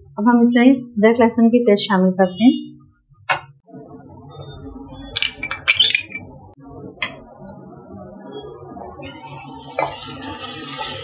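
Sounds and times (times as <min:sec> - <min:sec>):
spoon clinking on pot rim: 0:05.2 - 0:06.2
oil sizzling: 0:09.1 - 0:11.0.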